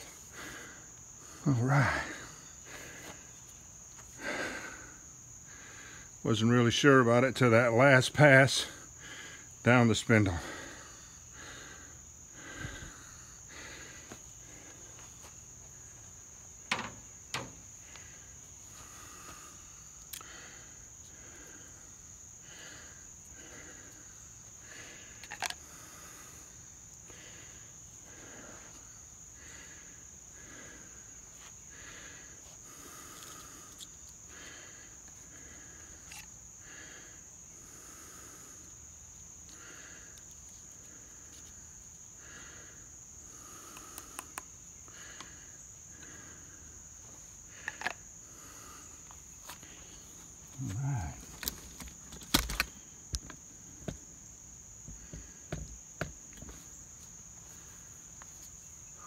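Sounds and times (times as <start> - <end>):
crickets droning: 0.0 - 59.0
sharp knocks: 16.7 - 17.6.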